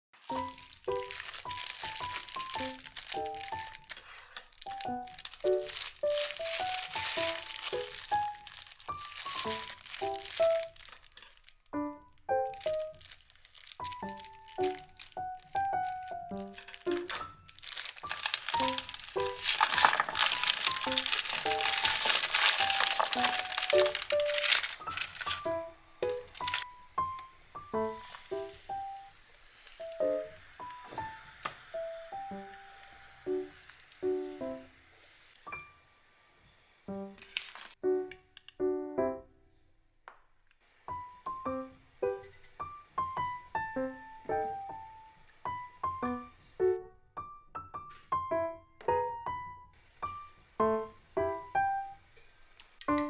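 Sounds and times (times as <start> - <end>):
piano melody: 0.1 - 39.6, 40.8 - 52.2, 52.8 - 53.0
background music: 0.2 - 4.0, 4.6 - 10.9, 11.7 - 29.2, 29.8 - 34.8
plastic bag crinkling: 0.2 - 35.7, 37.1 - 37.8.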